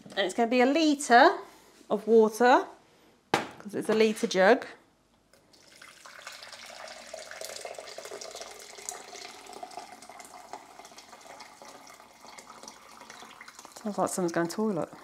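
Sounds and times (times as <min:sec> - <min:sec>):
water pouring into a jug: 0:05.4 - 0:15.0.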